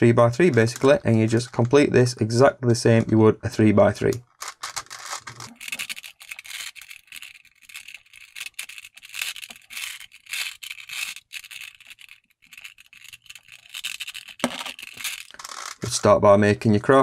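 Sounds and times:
puzzle cube plastic clicks: 4.0 - 15.9.

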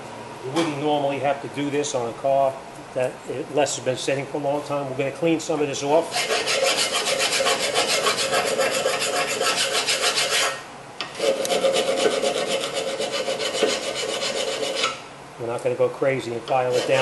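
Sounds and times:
hand file rasping on metal: 6.0 - 10.6, 11.2 - 15.0, 16.6 - 17.0.

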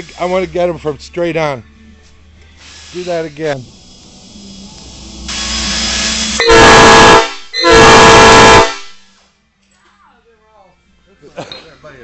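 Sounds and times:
air hissing: 0.0 - 0.8, 2.2 - 9.4
air horn blasts: 5.6 - 9.1.

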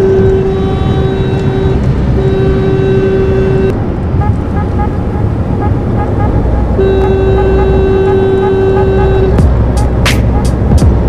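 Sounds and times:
loud steady pitched tone: 0.0 - 3.8, 5.6 - 10.6
car road and engine rumble: 0.0 - 11.0.

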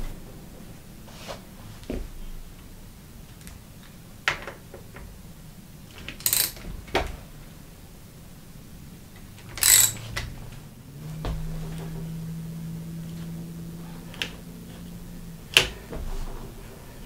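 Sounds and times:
metal brake hardware clinking: 6.2 - 6.6, 9.6 - 10.2
metallic rattles: 9.2 - 17.0.

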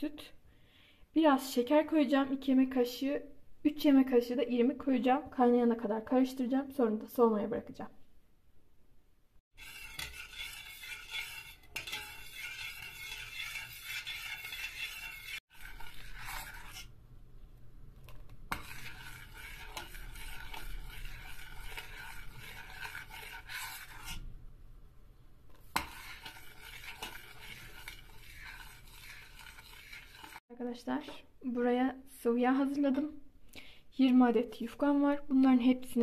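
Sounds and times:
utensil scraping metal saucepan: 9.5 - 17.0, 18.1 - 24.3, 25.5 - 30.4.

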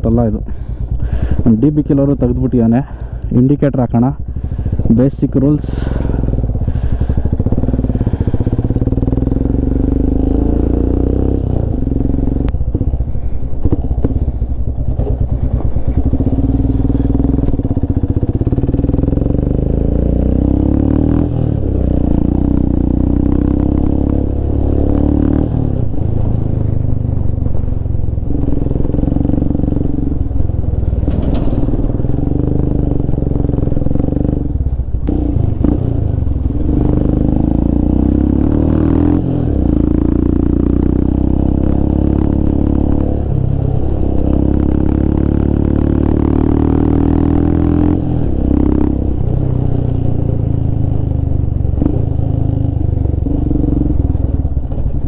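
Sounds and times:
motorcycle engine revving: 3.9 - 55.0.

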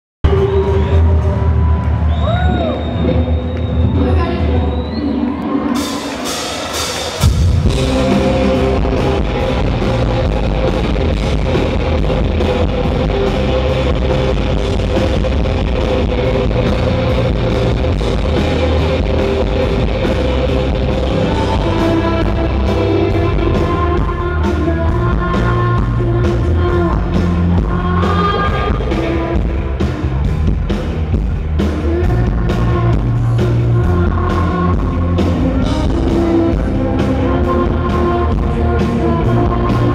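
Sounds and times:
live indie rock band: 0.3 - 39.9
woman singing: 21.0 - 29.8, 31.7 - 39.9.

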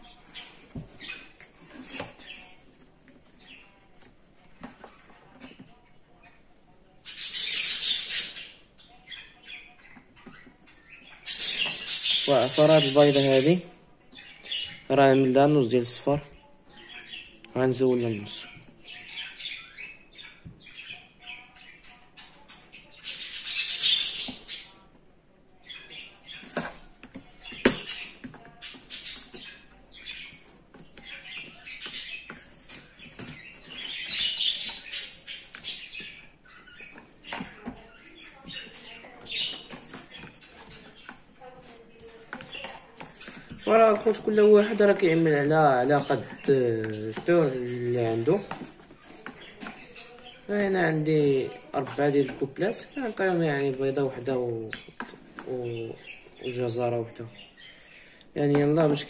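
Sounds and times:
budgerigars chattering: 7.1 - 9.6, 10.8 - 13.6, 18.9 - 24.8, 27.4 - 58.1
fork scraping plastic tub: 26.2 - 56.2.

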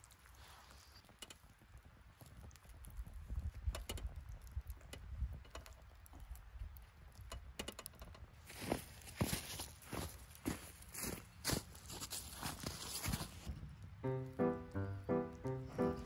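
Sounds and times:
campfire crackles and pops: 0.0 - 12.2.

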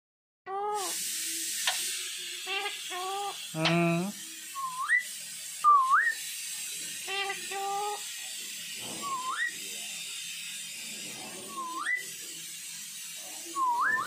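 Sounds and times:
parakeet mimicking words: 2.5 - 4.2, 7.1 - 8.0
parakeet rising whistles: 4.6 - 6.2, 9.0 - 9.6, 11.5 - 12.1, 13.6 - 14.0.

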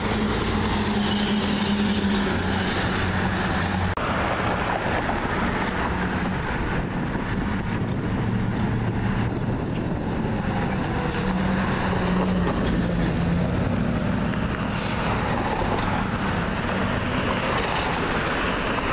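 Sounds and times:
tyre road noise: 0.0 - 18.9
high squeal: 9.4 - 11.5, 14.2 - 15.2.

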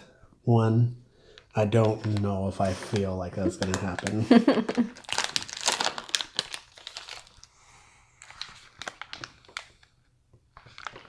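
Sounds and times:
snack wrapper crinkling: 1.2 - 7.6, 8.2 - 9.9, 10.6 - 11.0.

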